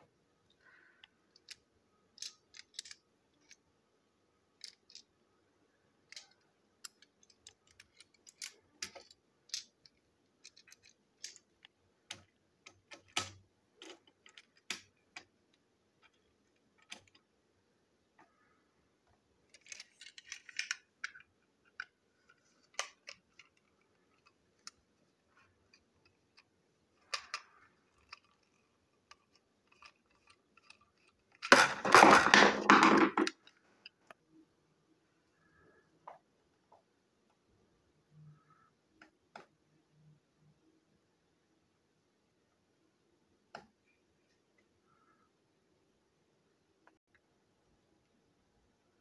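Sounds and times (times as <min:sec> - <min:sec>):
plastic toy wagons clicking: 0:01.3 - 0:03.6, 0:04.6 - 0:05.1, 0:06.1 - 0:15.3, 0:19.5 - 0:24.8, 0:25.4 - 0:33.6.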